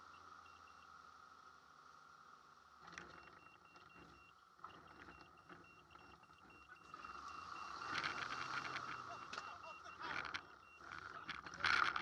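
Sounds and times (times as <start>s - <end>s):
rattles and clicks: 2.8s - 12.0s
short high beeps: 5.1s - 11.6s.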